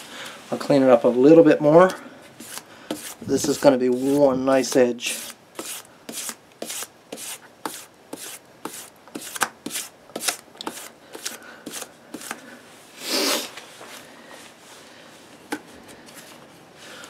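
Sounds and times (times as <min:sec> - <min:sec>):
sandpaper scraping on metal: 0:02.4 - 0:12.4.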